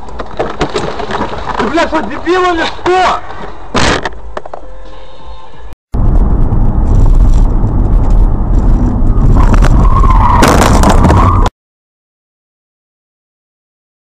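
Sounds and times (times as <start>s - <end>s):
loud deep vehicle noise: 5.9s - 10.2s.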